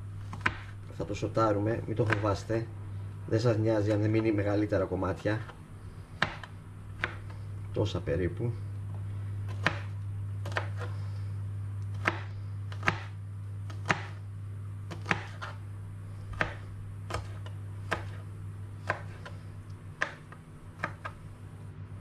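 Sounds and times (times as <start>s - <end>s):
steady low hum: 0.0s - 22.0s
knife chopping on cutting board: 0.3s - 0.8s, 2.0s - 2.3s, 6.2s - 7.3s, 9.5s - 11.0s, 11.9s - 14.2s, 14.9s - 15.6s, 16.3s - 19.4s, 20.0s - 21.2s.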